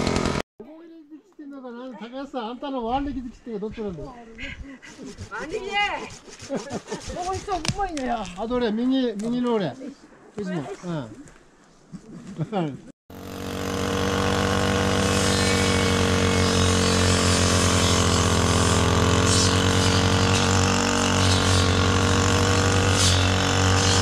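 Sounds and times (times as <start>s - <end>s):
brush cutter engine running: 0.0s - 0.4s, 13.1s - 24.0s.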